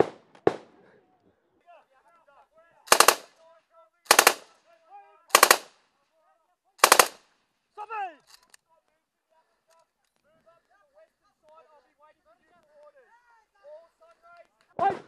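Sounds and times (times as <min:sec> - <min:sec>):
automatic gunfire bursts: 0:02.9 - 0:03.3, 0:04.1 - 0:04.4, 0:05.3 - 0:05.7, 0:06.8 - 0:07.2.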